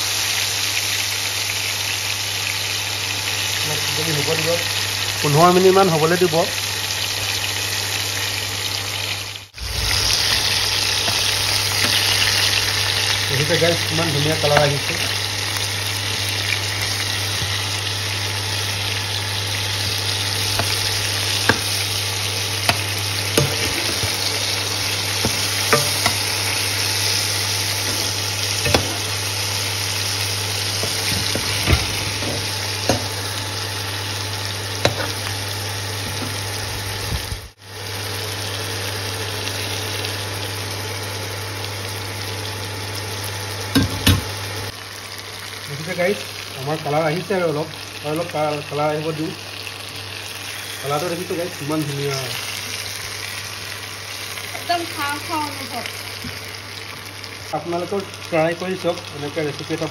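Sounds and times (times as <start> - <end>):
chicken sizzling in hot oil: 0.0 - 59.9
low hum: 9.6 - 13.3.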